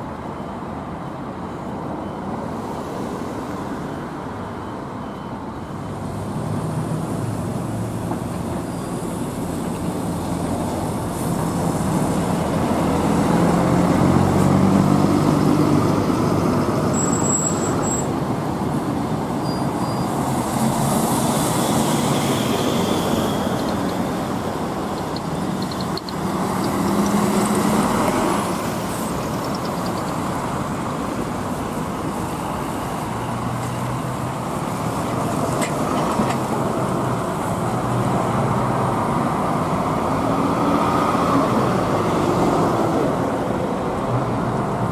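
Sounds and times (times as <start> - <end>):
buses driving past: 0.0 - 44.9.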